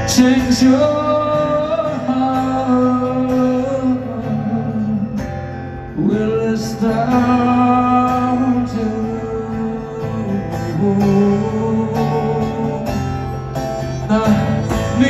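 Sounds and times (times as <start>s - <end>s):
strummed guitar chords: 0.0s - 15.0s
male singer holding long notes: 6.0s - 13.1s.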